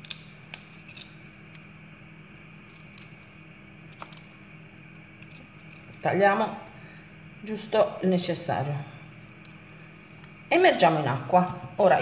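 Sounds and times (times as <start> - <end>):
knife snipping and scraping bulbs: 0.0 - 1.2, 5.2 - 6.1
faint steady hum: 0.0 - 12.0.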